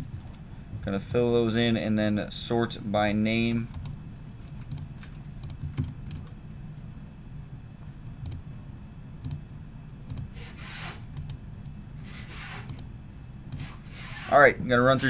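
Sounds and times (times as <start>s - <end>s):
low steady hum: 0.0s - 15.0s
mouse and keyboard clicks: 12.6s - 12.9s.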